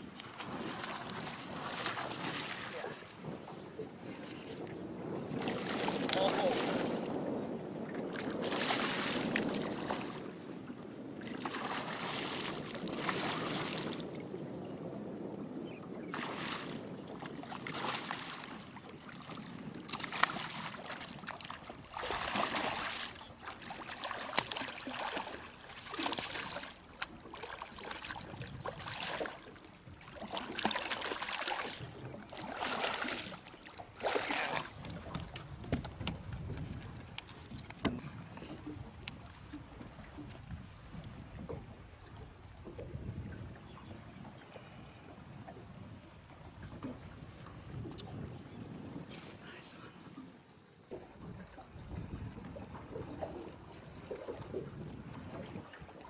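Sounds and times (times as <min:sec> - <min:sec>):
fish splashing in water: 0:19.9 - 0:35.3.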